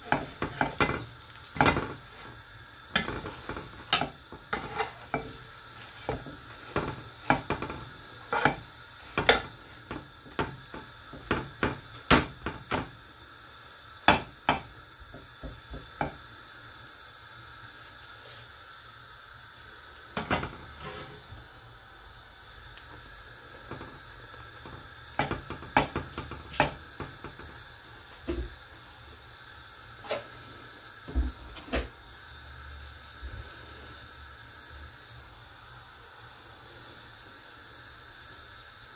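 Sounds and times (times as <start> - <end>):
faint sizzle: 0.0 - 38.9
metal spoon knocking on pan: 0.1 - 2.0, 14.1 - 14.7, 25.2 - 27.4.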